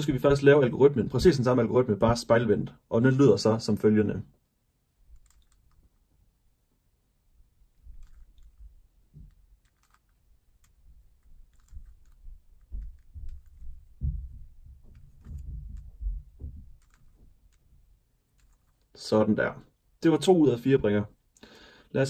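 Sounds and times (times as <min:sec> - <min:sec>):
puzzle cube plastic clicks: 0:05.1 - 0:06.1, 0:07.7 - 0:18.9
soft bumps of cube in hands: 0:07.7 - 0:18.9.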